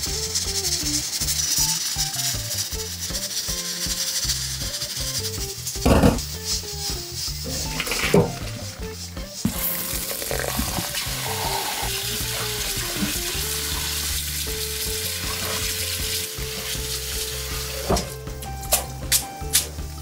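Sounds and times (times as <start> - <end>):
background music: 0.0 - 20.0
food sizzling: 0.0 - 20.0
utensil knock: 5.8 - 6.4.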